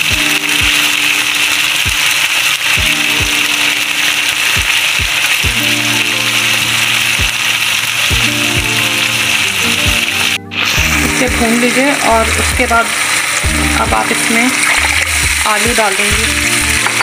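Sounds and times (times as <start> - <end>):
music with deep bass beats: 0.0 - 0.9, 2.8 - 3.6, 4.6 - 7.4, 8.1 - 11.5, 13.4 - 15.5
onions sizzling in hot oil: 0.0 - 17.0.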